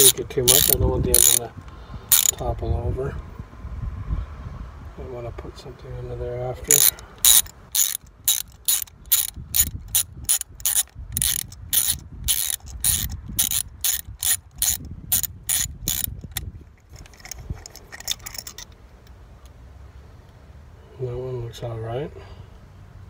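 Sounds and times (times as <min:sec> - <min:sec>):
socket ratchet clicking: 0:00.0 - 0:01.4, 0:02.1 - 0:02.4, 0:06.7 - 0:18.8.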